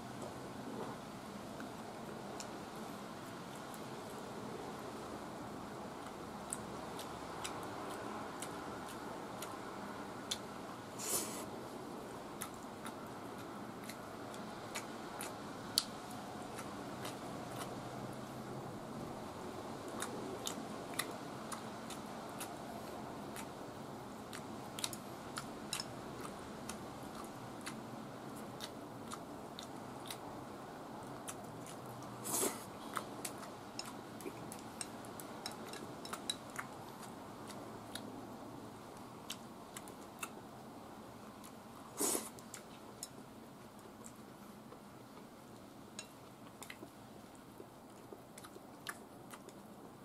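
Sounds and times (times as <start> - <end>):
low room hum: 0.0 - 50.0
soft chewing: 0.0 - 50.0
chopsticks clicking on bowl: 33.8 - 36.4.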